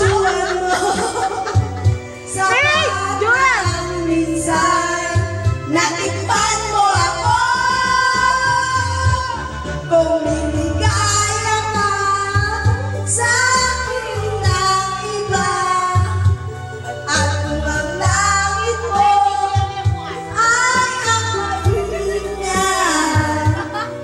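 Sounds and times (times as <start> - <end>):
backing music with bass beat: 0.0 - 24.0
women singing pop song: 0.0 - 24.0.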